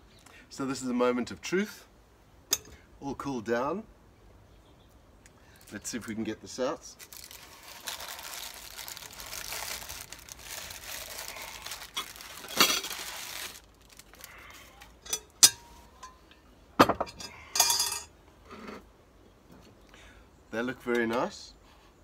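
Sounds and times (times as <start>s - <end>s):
crumbly rustle of scones: 5.5s - 15.0s
metal utensil clinking on cast iron: 15.0s - 16.4s, 17.0s - 18.1s.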